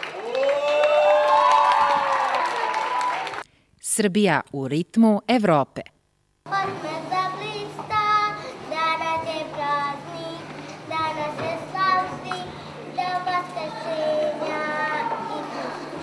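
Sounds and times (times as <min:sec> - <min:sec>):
girl singing: 0:06.5 - 0:16.0.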